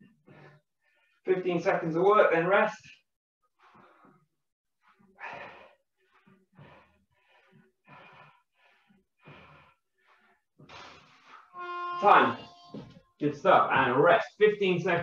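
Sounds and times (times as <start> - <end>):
man breathing hard: 5.2 - 11.5.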